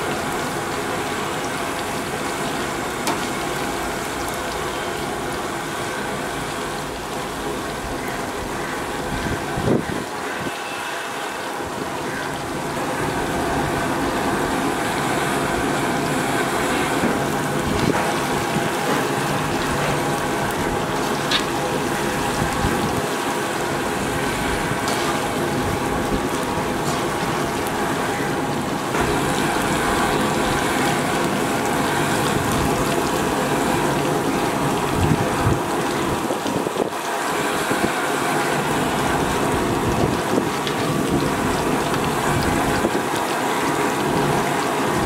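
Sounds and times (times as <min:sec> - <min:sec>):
hot oil sizzling: 0:00.0 - 0:45.0.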